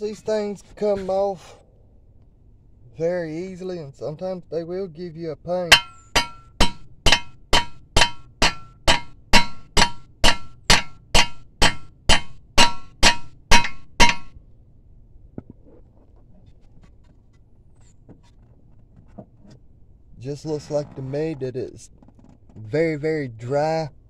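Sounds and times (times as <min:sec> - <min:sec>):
hammer striking metal nut: 0:05.7 - 0:14.3.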